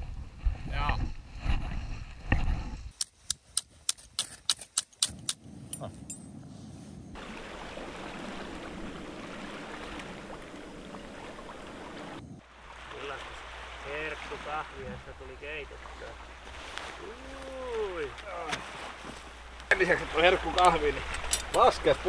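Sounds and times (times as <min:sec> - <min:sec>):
wind and water noise: 0:00.0 - 0:22.0
sharp metallic clicks: 0:03.0 - 0:06.2.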